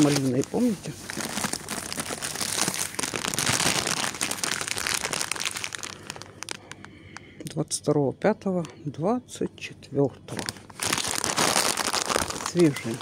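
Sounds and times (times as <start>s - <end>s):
plastic bag crinkling: 0.0s - 7.0s, 10.3s - 13.0s.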